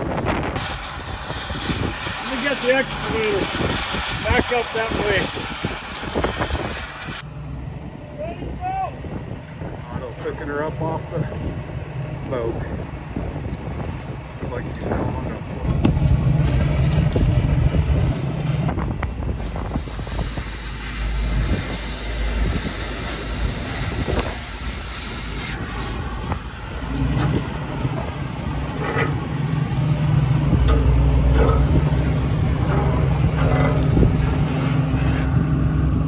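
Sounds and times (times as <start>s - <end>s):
cutting torch hissing: 0.0s - 7.3s, 15.8s - 36.0s
excavator diesel engine running: 15.1s - 36.0s
metal clanks: 26.8s - 35.4s.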